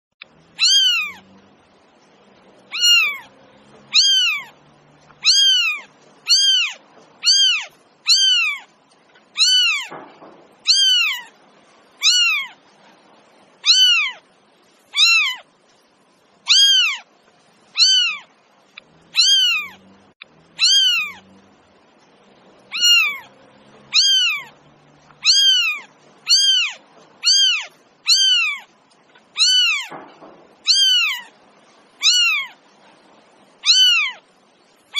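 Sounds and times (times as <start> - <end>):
cat meowing: 0.5 - 1.3, 2.7 - 4.6, 5.2 - 8.7, 9.3 - 10.0, 10.6 - 11.3, 12.0 - 12.6, 13.6 - 14.2, 14.9 - 15.5, 16.5 - 17.1, 17.7 - 18.3, 18.9 - 19.9, 20.5 - 21.3, 22.7 - 30.0, 30.6 - 31.4, 32.0 - 32.6, 33.6 - 34.2.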